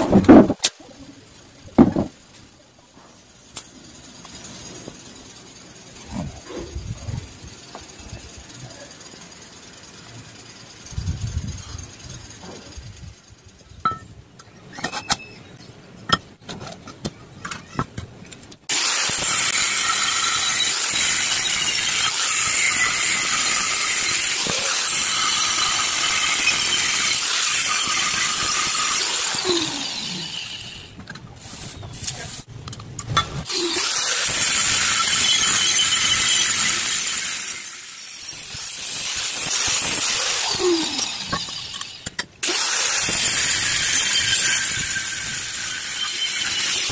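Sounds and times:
angle grinder cutting metal: 18.7s - 31.0s, 33.4s - 46.9s.

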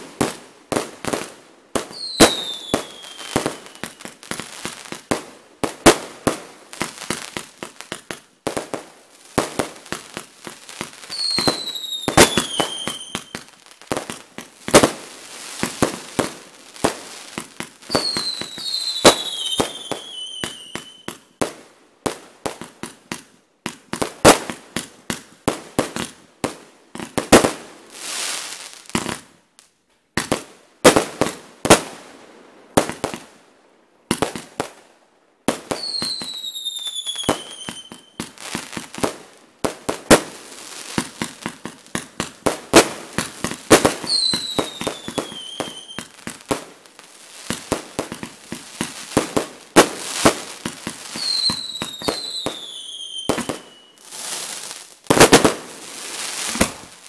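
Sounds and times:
firework bursts and bangs: 0.0s - 29.3s, 30.1s - 33.4s, 34.0s - 57.0s
firework crackle: 0.0s - 29.3s, 35.5s - 57.0s
falling firework whistles: 1.9s - 4.2s, 11.0s - 13.5s, 17.8s - 21.2s, 35.7s - 38.6s, 43.4s - 46.1s, 48.5s - 57.0s.

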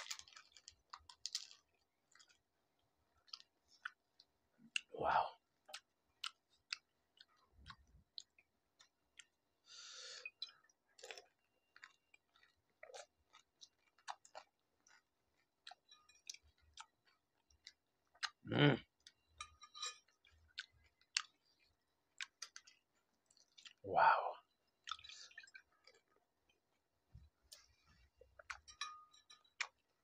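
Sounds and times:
crisp shells cracking and crunching: 0.0s - 2.4s.

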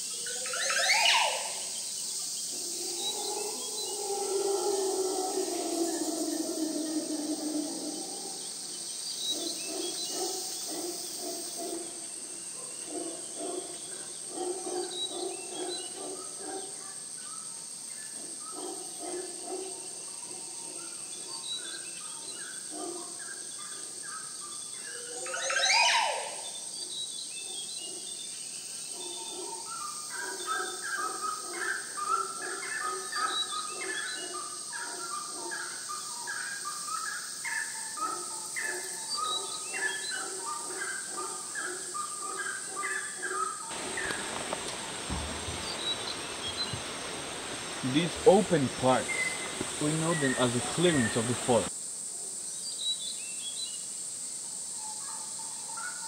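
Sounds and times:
birds calling: 38.0s - 51.7s.

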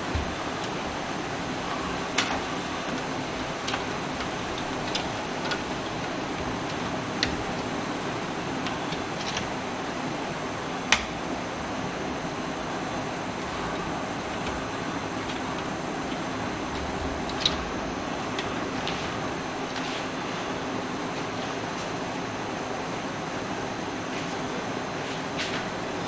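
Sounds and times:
steady background hiss: 0.0s - 26.0s.

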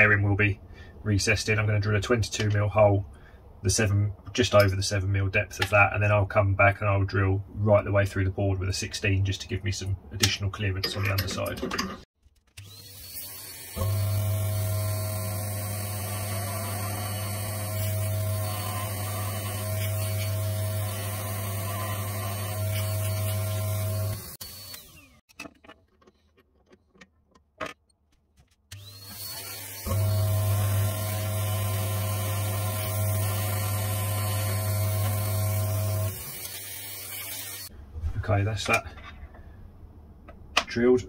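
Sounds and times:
pillar drill boring into plywood: 12.6s - 25.2s, 28.8s - 37.7s
shop vacuum running: 12.6s - 25.2s, 28.8s - 37.7s.

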